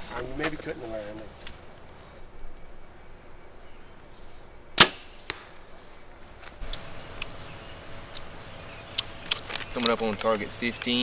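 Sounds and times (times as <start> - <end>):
arrow hitting target: 4.8 - 5.6.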